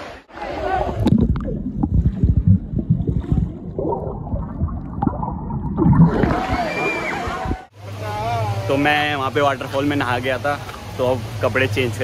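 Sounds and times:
muffled waterfall rush: 6.3s - 12.0s.

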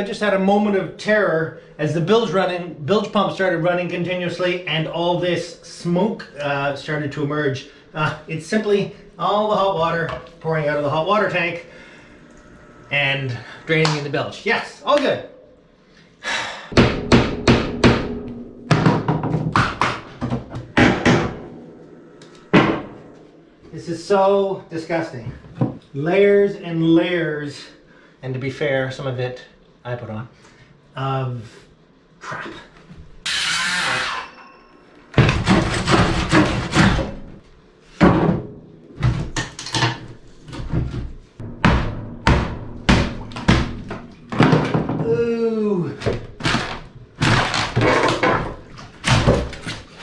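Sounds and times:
loud knocks and bangs: 16.7s - 21.7s, 22.4s - 23.2s, 38.0s - 39.5s, 40.6s - 45.2s, 46.0s - 49.9s.

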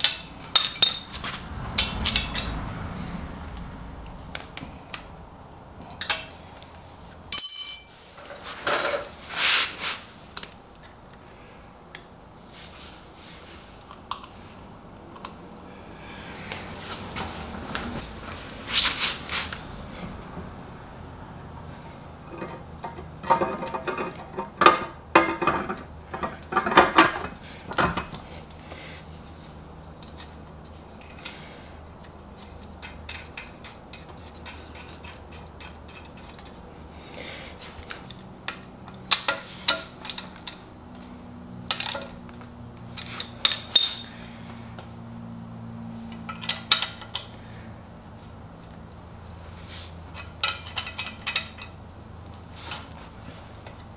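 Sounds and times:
metal clinks and clicks: 1.8s - 2.6s, 7.3s - 8.1s.

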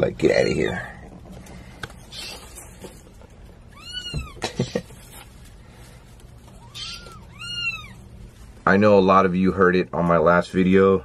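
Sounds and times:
kitten mewing: 6.6s - 8.1s.

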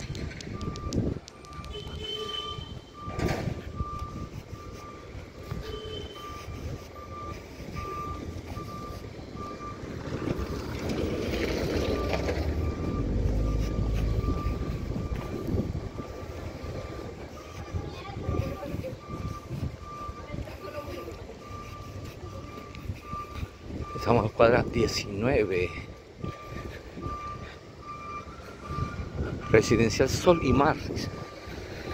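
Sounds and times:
reversing alarm beeps: 0.0s - 31.9s
street traffic: 0.0s - 31.9s
heavy vehicle engine passing: 6.2s - 25.0s.

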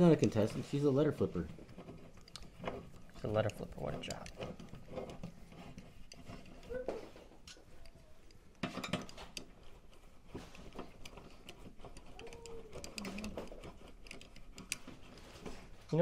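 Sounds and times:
ratchet and bolts clicking: 1.5s - 6.7s.

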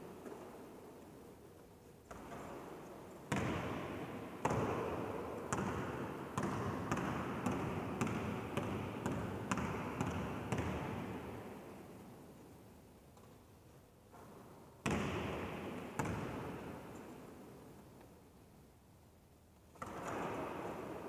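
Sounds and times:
basketball bouncing on hardwood floor: 3.3s - 3.8s, 6.4s - 11.1s, 16.0s - 16.5s.

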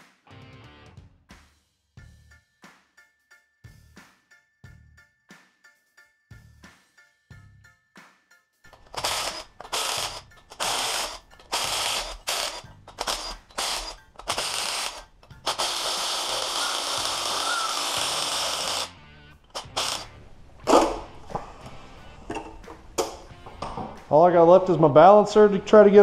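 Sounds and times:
impact driver running: 8.7s - 21.0s.

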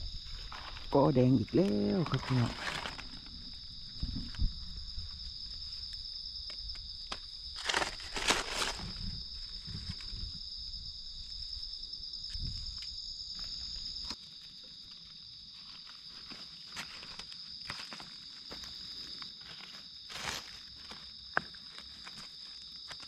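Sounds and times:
dry leaves rustling: 0.0s - 4.0s, 7.6s - 9.6s, 14.2s - 23.0s
night insects chorus: 0.0s - 23.0s.

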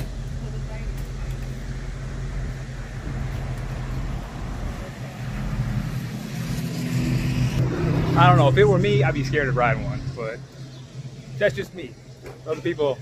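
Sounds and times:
vehicle engine idling: 0.0s - 6.6s.

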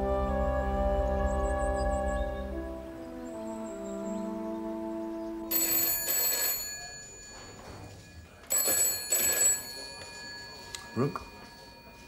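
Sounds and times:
music: 0.0s - 5.5s
telephone ringing: 5.5s - 12.0s.

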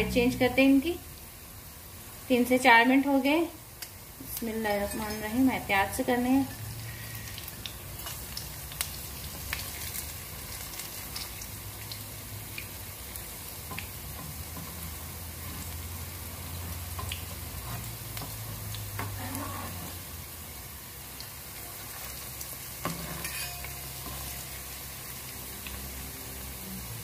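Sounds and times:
food sizzling in oil: 0.0s - 27.0s
metal spatula scraping pan: 16.9s - 20.1s, 22.8s - 24.6s.

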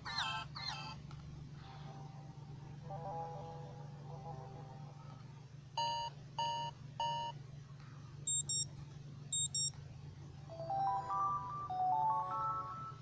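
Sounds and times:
medium-pitched beeps: 8.3s - 8.7s, 9.3s - 9.7s
short high-pitched double beeps: 8.3s - 8.7s, 9.4s - 9.7s
melodic tone sequence: 10.6s - 13.0s.

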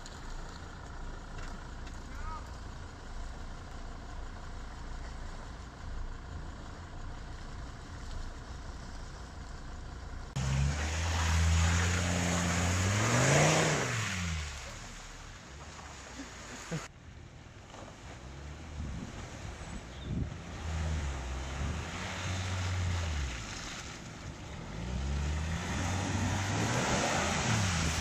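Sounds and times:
off-road vehicle engine revving: 10.3s - 16.9s, 17.7s - 28.0s
rushing hiss through mud and water: 10.6s - 16.9s.

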